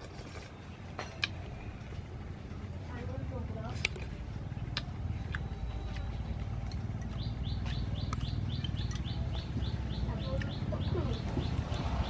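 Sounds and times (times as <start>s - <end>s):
low outdoor rumble: 0.0s - 12.0s
small bird chirping: 6.9s - 12.0s.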